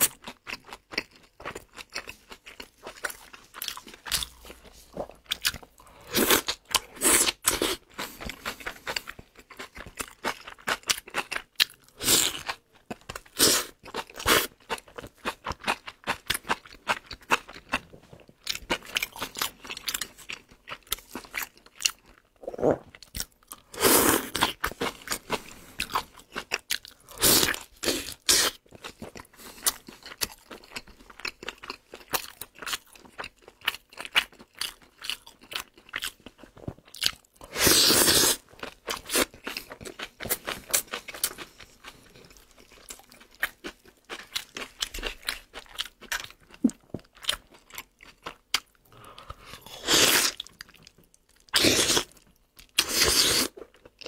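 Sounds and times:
man chewing and crunching food: 0.0 - 54.0
wet mouth sounds: 22.4 - 23.0.

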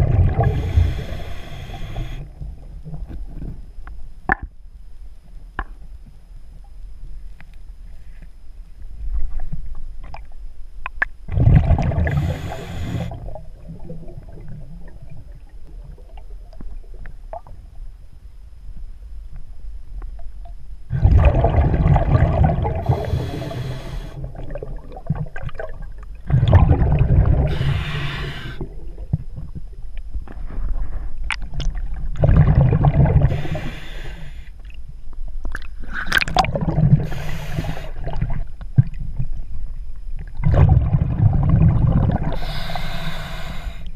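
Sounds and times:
diver exhaling bubbles: 0.0 - 2.2, 11.3 - 15.1, 20.9 - 28.8, 32.2 - 33.8, 35.8 - 38.4, 40.4 - 43.3.

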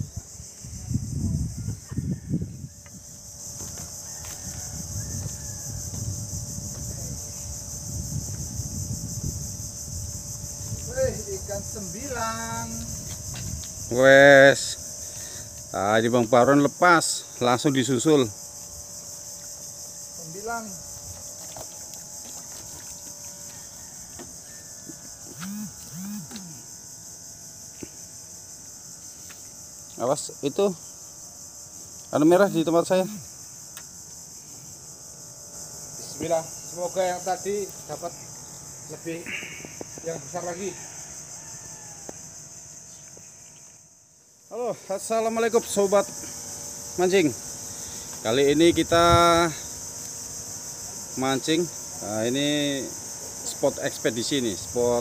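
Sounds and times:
shrill insect chorus: 0.0 - 55.0
person humming: 25.4 - 26.7.

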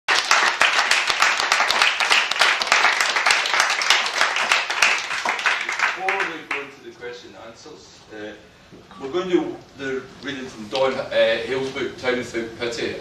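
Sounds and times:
audience applauding: 0.1 - 6.8.

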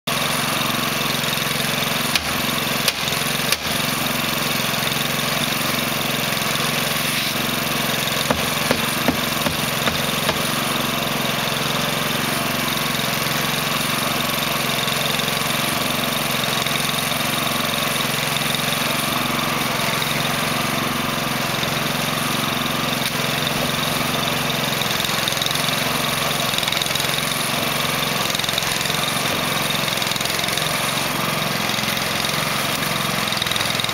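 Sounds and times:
mortar mixer engine running: 0.1 - 33.9
sharp knocks: 8.3 - 10.5.

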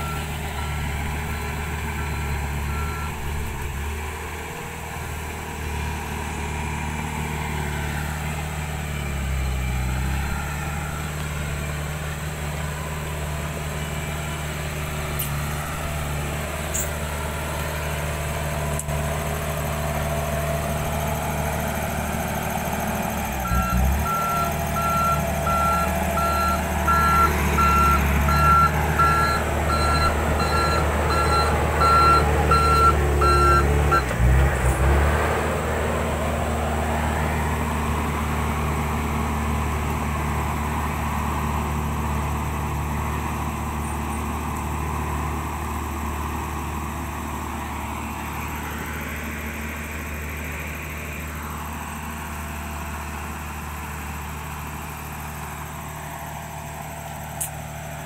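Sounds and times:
reverse alarm beeping: 0.0 - 3.3, 23.4 - 34.1
bulldozer diesel engine running: 0.0 - 58.0.

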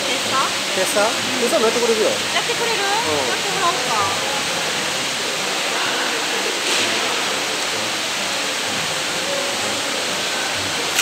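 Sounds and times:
running water rushing: 0.0 - 11.0
fish splashing at surface: 6.6 - 7.6.

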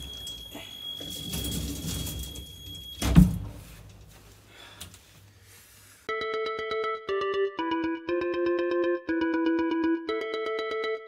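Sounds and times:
synthesizer music: 6.1 - 11.0.

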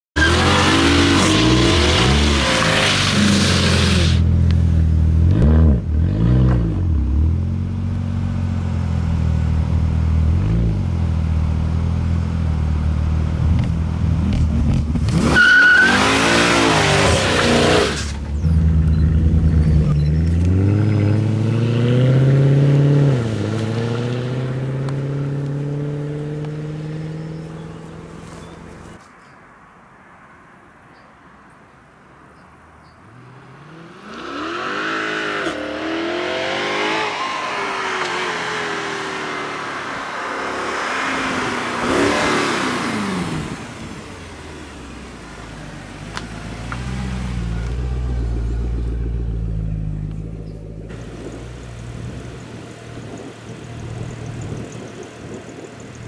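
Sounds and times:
car engine revving: 0.2 - 28.8, 33.2 - 56.0
car pulling away: 0.2 - 29.0, 33.1 - 56.0
tyres squealing: 15.2 - 20.5.

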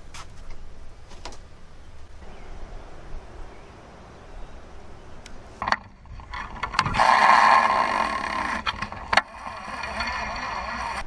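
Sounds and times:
fishing reel whirring: 6.2 - 11.0
fishing reel clicks: 6.3 - 11.0.

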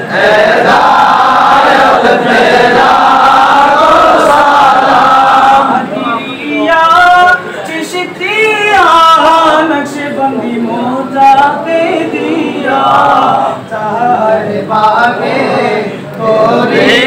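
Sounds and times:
men chanting together: 0.0 - 6.3, 10.6 - 17.0
man singing alone: 6.0 - 15.8.

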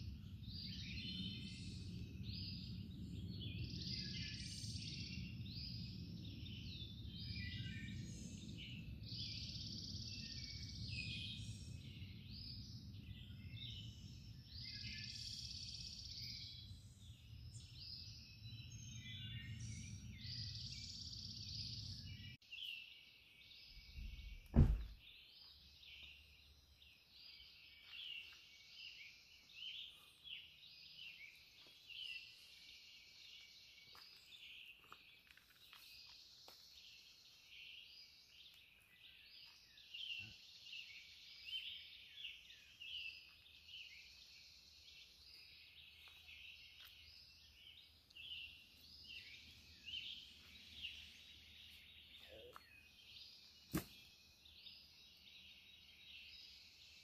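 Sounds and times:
songbirds chirping: 0.0 - 57.0
loud thump: 24.0 - 25.0.

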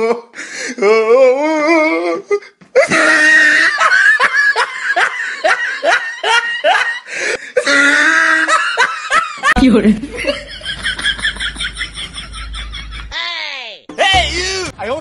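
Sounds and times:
hearty laughter: 2.8 - 13.2.

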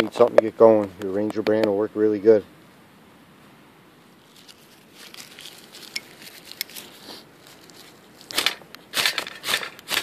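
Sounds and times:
dry tinder crinkling: 4.2 - 10.0
ferro rod scrape: 5.0 - 10.0.

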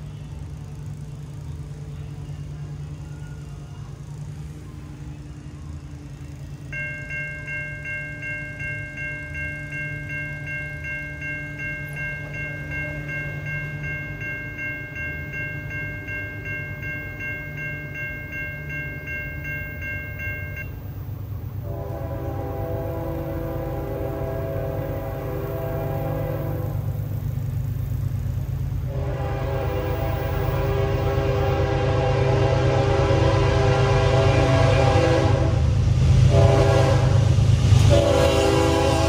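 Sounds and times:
electronic crossing bell ringing: 6.6 - 21.0
locomotive horn: 21.6 - 27.1, 28.8 - 39.0.

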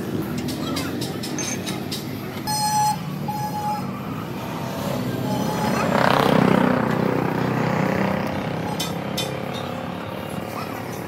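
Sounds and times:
traffic hum: 0.0 - 11.0
car horn honks: 2.4 - 4.0
vehicle passing close by: 3.9 - 10.6.

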